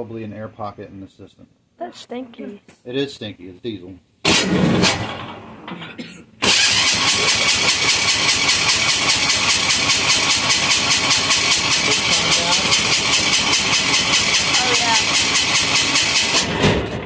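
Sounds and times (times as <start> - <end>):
electric starter cranking engine: 6.4 - 17.0.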